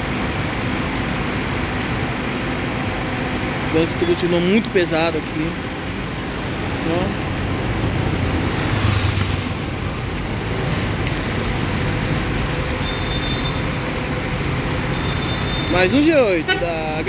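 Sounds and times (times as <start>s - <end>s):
bus diesel engine running: 0.0s - 17.0s
slow-moving traffic: 0.0s - 17.0s.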